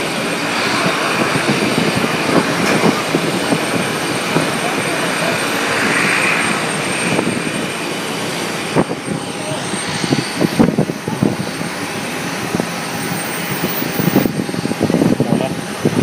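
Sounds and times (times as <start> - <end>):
jet engines whining: 0.0 - 16.0.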